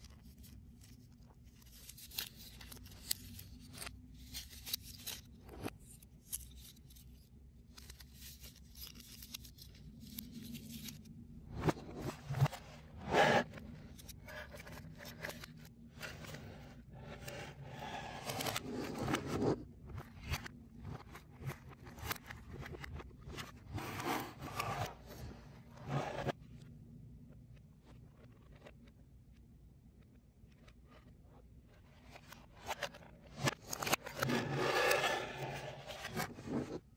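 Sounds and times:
puzzle pieces scraping and clicking: 11.6 - 23.0, 32.6 - 36.8.

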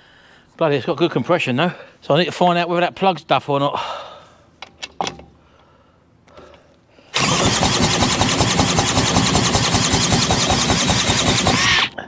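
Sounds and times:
engine cranking by drill: 7.1 - 12.0.

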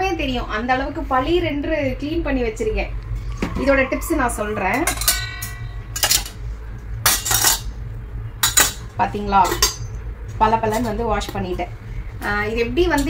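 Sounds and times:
low steady hum: 0.0 - 13.0
metal cups clinking: 4.8 - 6.4, 7.0 - 7.7, 8.4 - 10.0.

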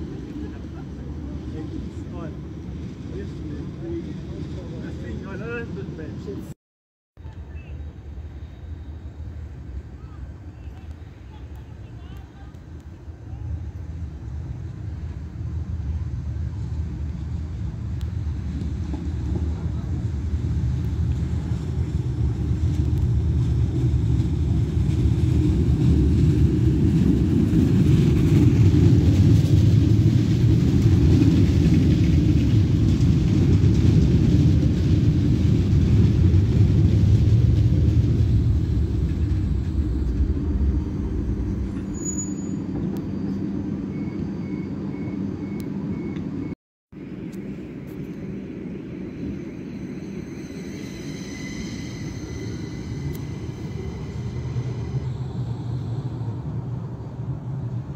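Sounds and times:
tram rumbling past: 0.0 - 6.6, 7.2 - 57.9
faint high beeps: 41.9 - 46.6.

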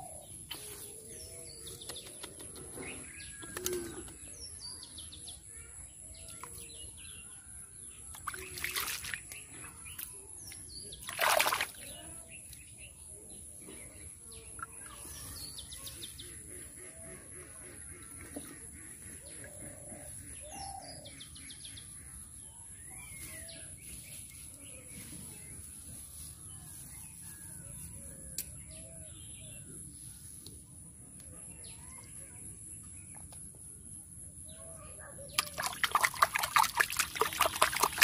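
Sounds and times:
hand splashing muddy water: 8.1 - 10.1, 11.0 - 12.2, 35.4 - 38.0.

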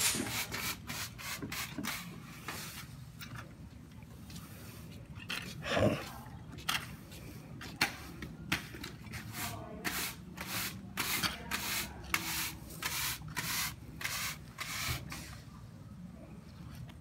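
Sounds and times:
push brooms sweeping pavement: 0.0 - 2.9, 7.7 - 15.4.

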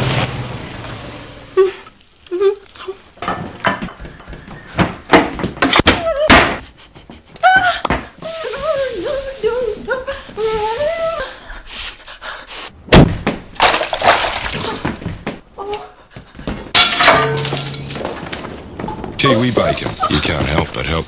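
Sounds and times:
sharp knocks and thuds: 12.9 - 13.6.

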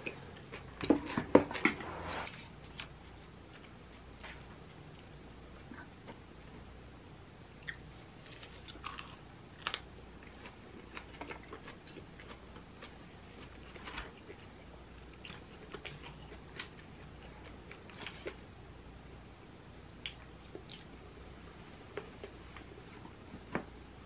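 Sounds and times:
chewing food: 7.6 - 18.5, 20.0 - 21.1.

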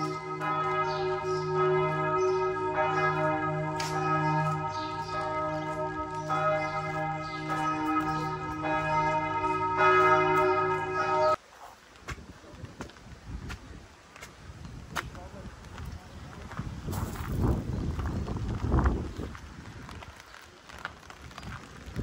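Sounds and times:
church bells ringing: 0.0 - 11.4.

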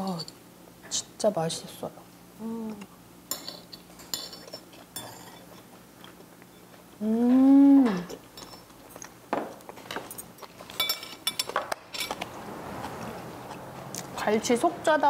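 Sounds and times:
cutlery clinking on dishes: 3.3 - 5.7, 9.9 - 12.3
person saying mmm: 7.0 - 8.1.

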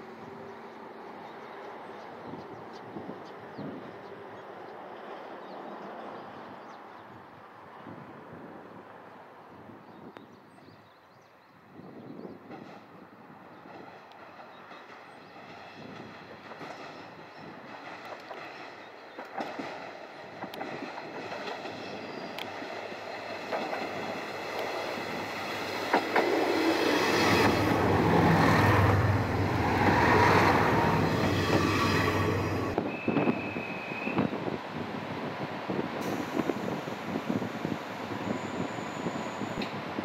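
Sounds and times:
diesel railcar passing: 0.0 - 9.7, 12.4 - 40.0
clicks from rail joints: 17.8 - 21.7.

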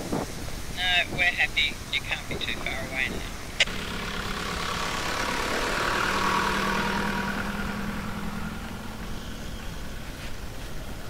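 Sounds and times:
vehicle engine passing by: 2.7 - 11.0.

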